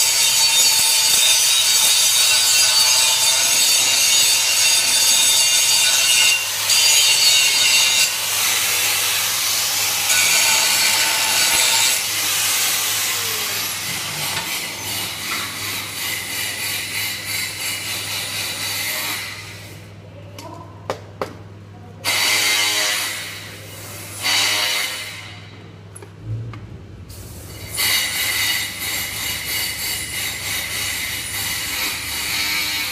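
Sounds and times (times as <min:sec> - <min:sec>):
angle grinder grinding steel: 0:00.0 - 0:19.4, 0:27.5 - 0:32.9
low steady hum: 0:25.6 - 0:27.8.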